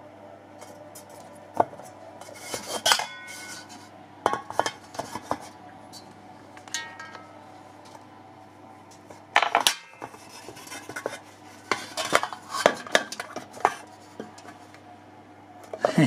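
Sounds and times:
metal scrape: 2.2s - 3.9s, 10.0s - 13.0s.

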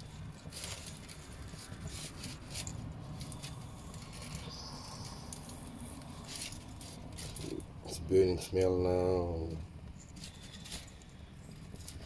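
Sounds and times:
faint crackles: 0.0s - 12.0s
gas burner flame: 0.0s - 12.0s.

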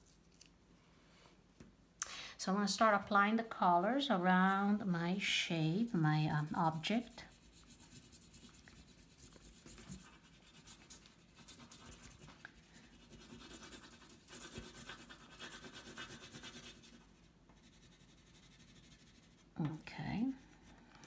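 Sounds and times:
oil pastel scratching on paper: 4.2s - 19.6s.

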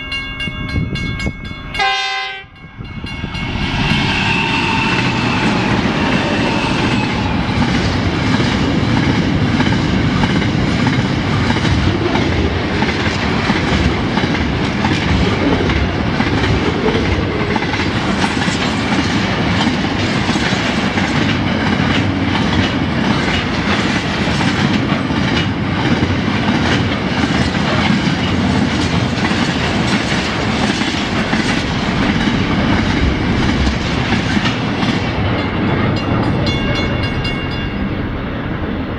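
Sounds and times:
train wheels rumbling on rail: 0.0s - 38.9s
wheels clacking over rail joints: 7.2s - 37.9s.

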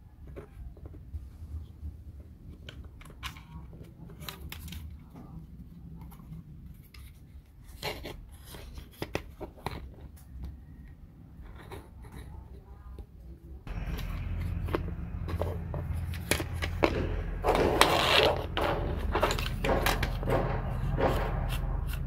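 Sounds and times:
scraping snipping sounds: 13.7s - 22.0s.

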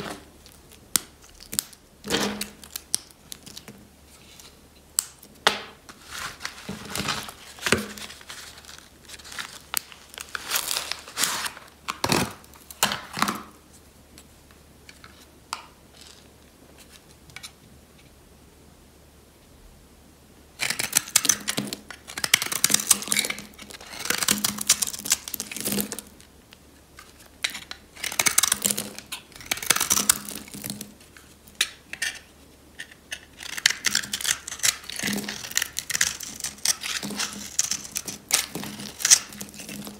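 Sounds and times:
knife scraping soap: 27.0s - 30.8s, 31.5s - 39.9s.

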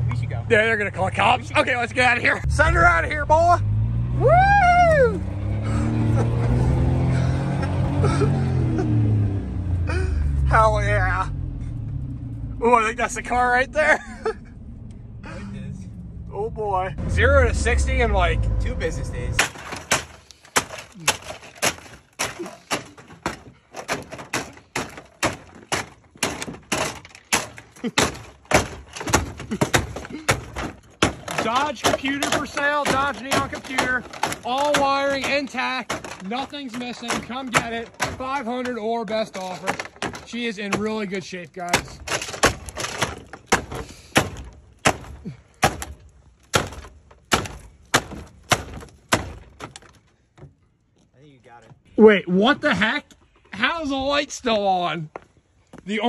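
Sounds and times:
plastic cracking: 19.4s - 40.9s
boots stomping on plastic: 19.4s - 41.0s.

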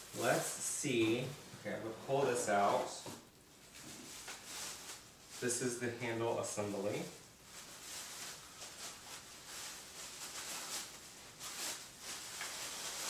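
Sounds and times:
plastic bag crinkling: 6.8s - 13.0s.

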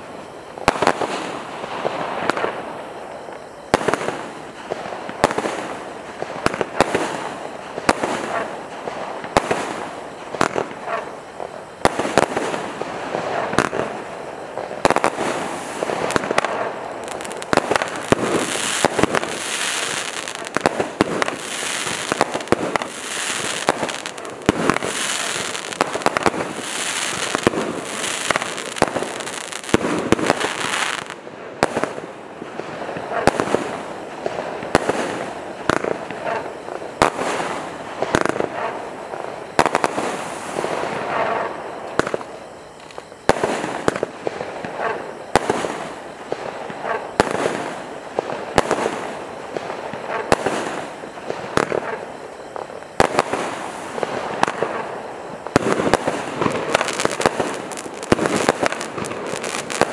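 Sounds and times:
firework shots firing: 0.6s - 59.9s
hissing crackling bursts: 0.7s - 31.2s.

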